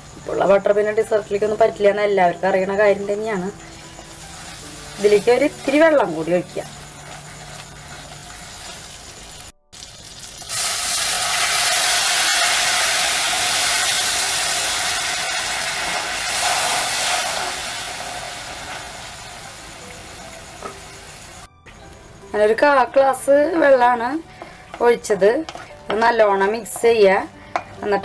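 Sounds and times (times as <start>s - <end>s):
pan sizzling with hissing steam: 3.1s - 21.5s, 22.9s - 28.0s
water hitting hot wok: 9.7s - 19.1s.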